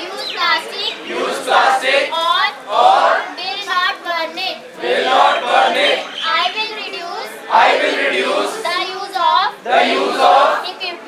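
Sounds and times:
students chanting in unison: 0:00.9 - 0:03.4, 0:04.8 - 0:06.2, 0:07.4 - 0:08.9, 0:09.6 - 0:10.8.

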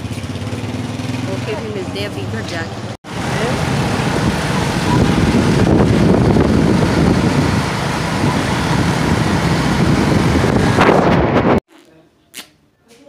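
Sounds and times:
motorcycle running: 0:00.0 - 0:11.6
wind buffeting microphone: 0:03.6 - 0:11.6.

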